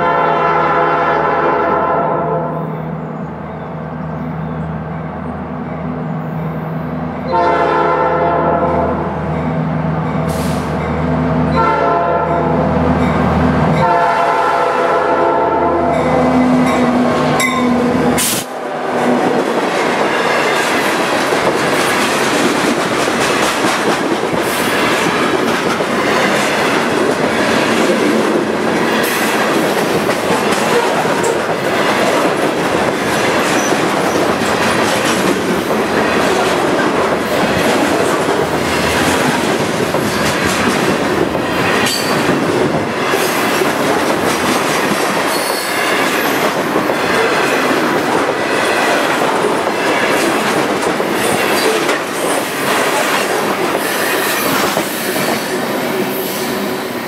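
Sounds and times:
wheels clicking over rail joints: 19.4s - 55.3s.

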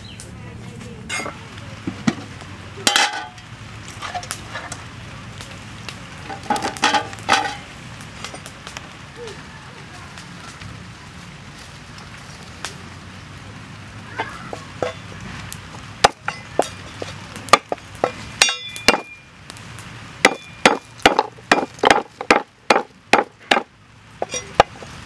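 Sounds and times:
metallic clink: 18.4s - 19.2s.

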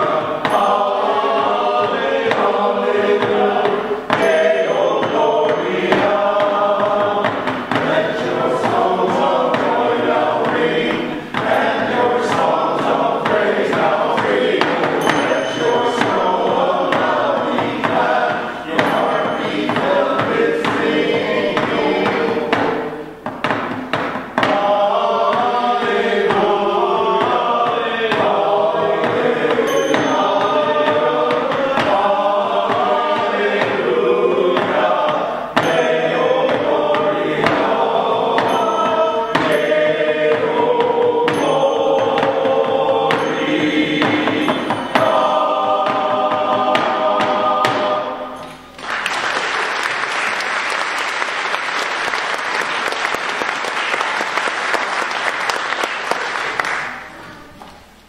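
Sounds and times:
male choir singing: 0.0s - 23.2s, 24.4s - 48.6s
audience applause: 48.8s - 57.2s.

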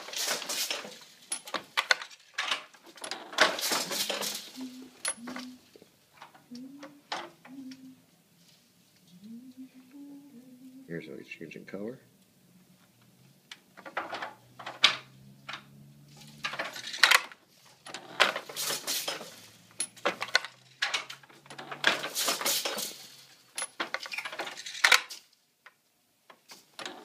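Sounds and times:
loom wooden clacks: 0.0s - 5.6s, 13.6s - 25.2s
metallic clatter of loom shafts: 0.0s - 5.6s, 13.8s - 25.2s.

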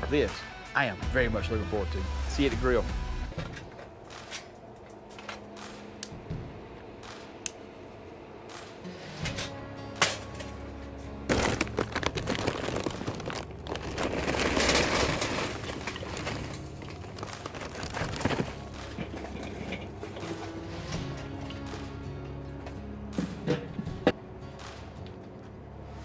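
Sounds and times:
charcoal clattering into metal chimney: 9.2s - 10.6s, 11.3s - 21.7s.

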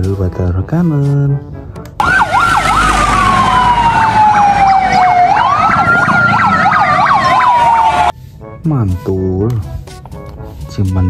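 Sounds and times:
siren wail: 2.0s - 8.1s
siren yelp: 2.0s - 8.1s.

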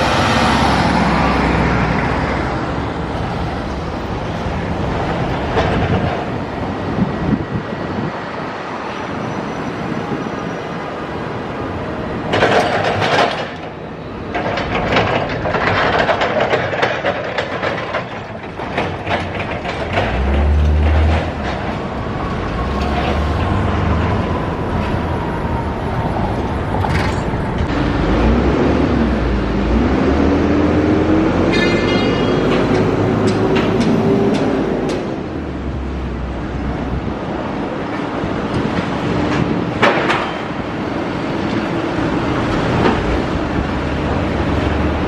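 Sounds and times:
heavy vehicle rumbling past: 0.0s - 8.1s, 18.6s - 37.3s
city street traffic: 0.0s - 45.0s
emergency vehicle siren wailing: 21.8s - 28.4s.

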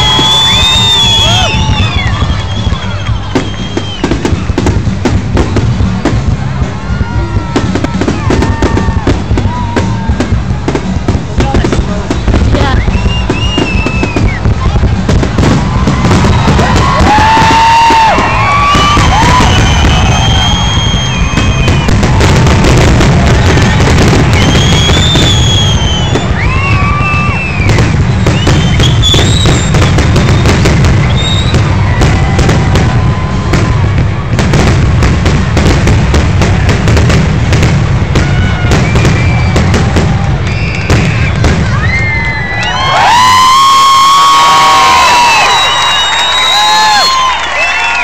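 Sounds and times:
fireworks bangs and crackling: 0.0s - 48.0s
heavy low rumble: 1.4s - 42.5s.

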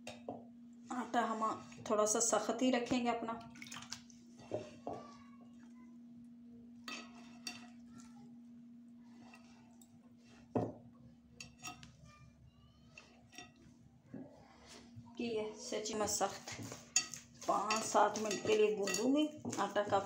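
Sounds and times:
hands kneading dough: 12.8s - 20.0s.

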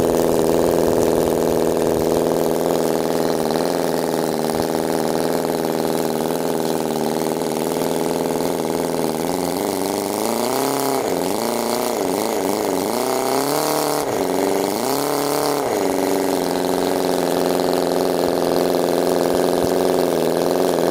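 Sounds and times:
model engine idling and revving: 0.0s - 20.9s.

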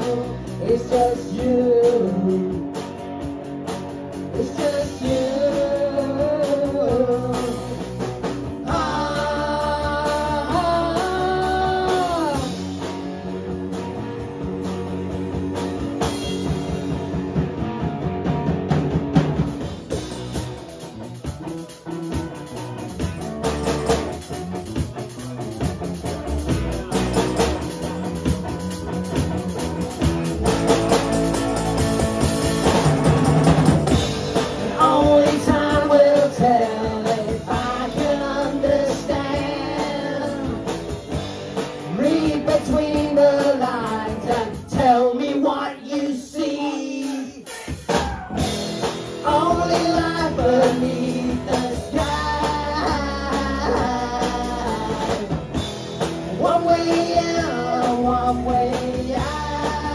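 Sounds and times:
woman singing: 0.0s - 2.6s, 4.4s - 7.8s, 8.6s - 12.6s, 34.7s - 40.8s, 41.9s - 47.5s, 49.2s - 55.4s, 56.4s - 59.9s
live rock band playing: 0.0s - 59.9s.

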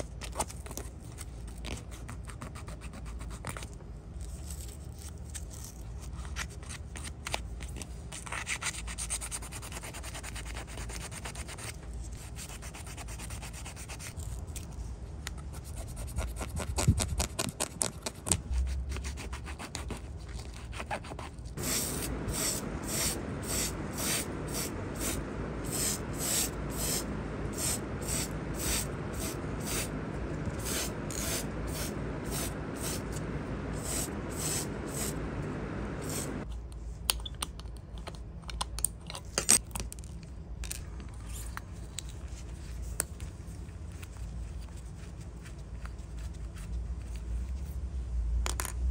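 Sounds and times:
spray paint hissing: 21.6s - 36.4s
sandpaper rubbing on metal: 30.6s - 35.2s.

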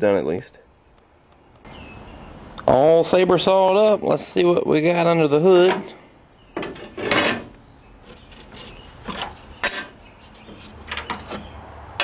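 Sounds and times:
metal panel scraping and rattling: 6.6s - 11.6s
light clicks and scrapes: 8.0s - 11.5s.

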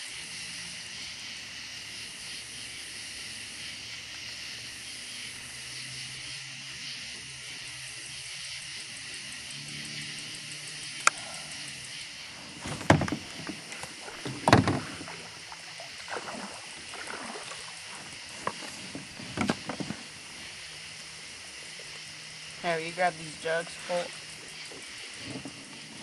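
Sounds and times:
steady high hiss: 0.0s - 26.0s
gear knocking against kayak: 12.5s - 15.2s, 18.3s - 20.1s.

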